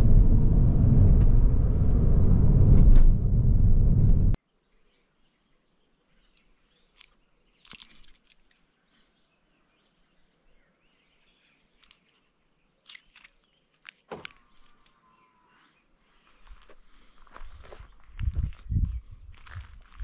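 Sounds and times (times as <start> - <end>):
faint footsteps: 16.2 - 20.0.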